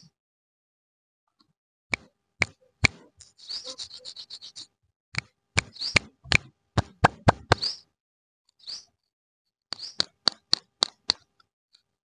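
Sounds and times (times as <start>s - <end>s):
sharp pops and clicks: 1.9s - 3.4s, 5.2s - 7.7s, 9.7s - 11.9s
high squeaky ticks: 1.9s - 6.5s, 9.7s - 11.4s.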